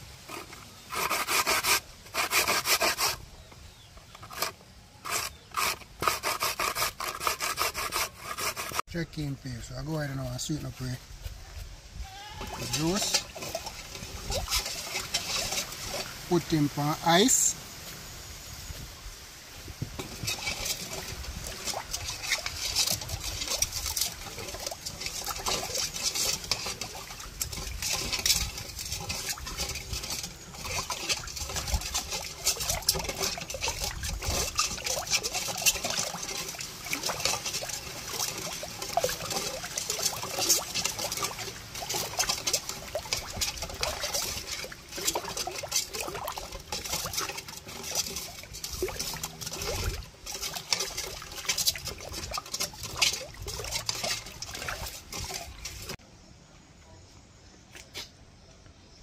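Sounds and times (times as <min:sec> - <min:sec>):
juice trickling and spattering: 0:12.4 - 0:17.6, 0:19.7 - 0:56.0.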